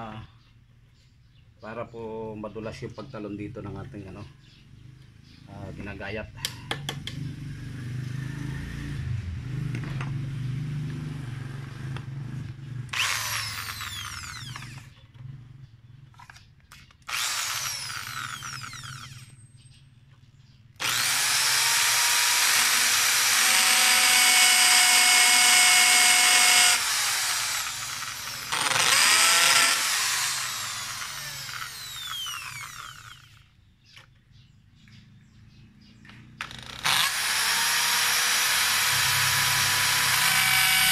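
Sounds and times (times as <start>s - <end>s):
electric drill drilling into wood: 12.9s - 14.9s, 17.0s - 19.3s, 20.8s - 33.4s, 36.4s - 40.9s.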